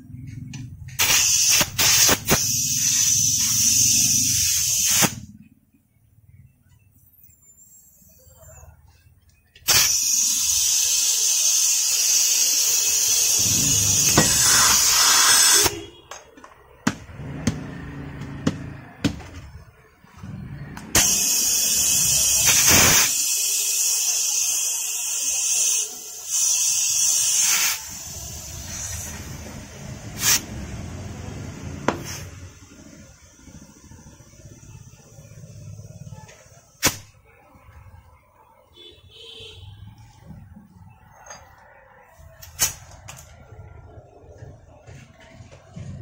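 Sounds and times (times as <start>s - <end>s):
compressed air hissing: 1.0s - 5.3s, 9.6s - 16.0s, 20.9s - 37.2s.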